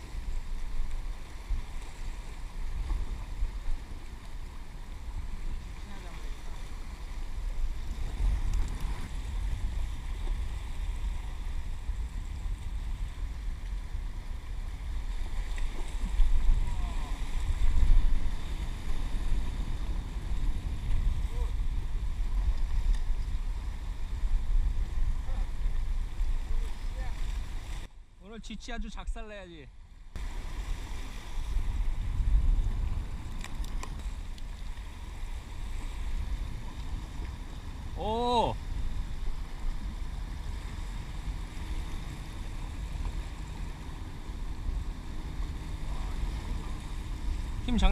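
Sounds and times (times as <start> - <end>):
wind buffeting microphone: 0.0 - 27.9, 30.1 - 47.9
fast-moving water: 0.0 - 29.6, 30.2 - 47.9
faint clicks: 33.3 - 34.5.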